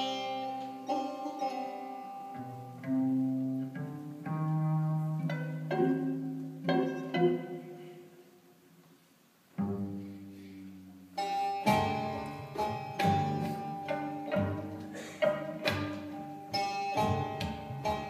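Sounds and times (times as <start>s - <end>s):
plucked lute notes: 0.0s - 8.6s, 9.5s - 18.0s
bowed string instrument: 0.0s - 18.0s.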